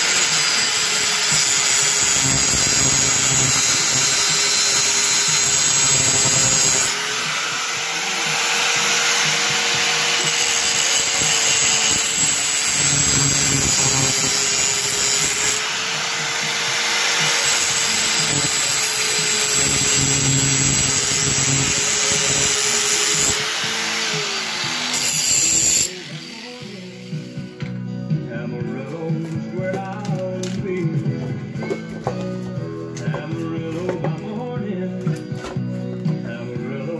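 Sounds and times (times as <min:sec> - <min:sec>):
angle grinder grinding steel: 0:00.0 - 0:27.5
music playing: 0:00.0 - 0:36.9.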